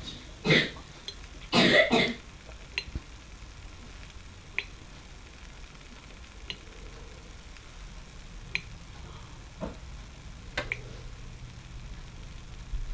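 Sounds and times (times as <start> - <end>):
faint sharp ticks: 6.4 - 6.7, 8.5 - 8.8.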